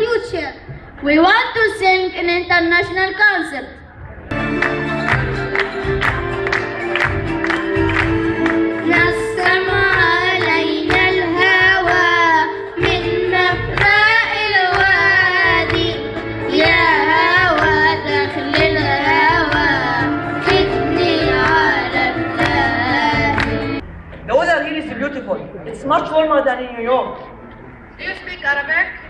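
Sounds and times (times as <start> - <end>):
instrumental accompaniment: 4.2 - 24.3
children singing: 8.8 - 23.8.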